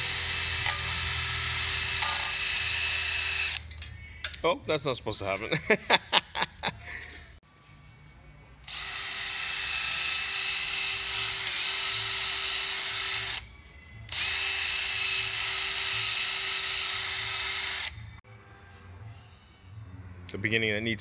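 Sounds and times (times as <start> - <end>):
cordless drill spinning a brush: 8.7 - 13.4, 14.1 - 18.0.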